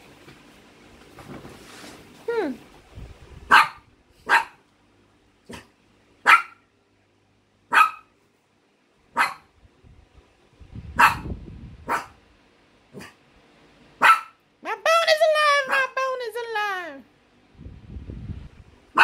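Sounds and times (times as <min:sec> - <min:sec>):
small dog barking: 0:03.5 - 0:04.6, 0:05.5 - 0:06.7, 0:07.7 - 0:08.2, 0:09.1 - 0:09.5, 0:10.9 - 0:12.2, 0:12.9 - 0:13.2, 0:14.0 - 0:14.4, 0:15.6 - 0:16.0
low rumble: 0:17.5 - 0:18.9.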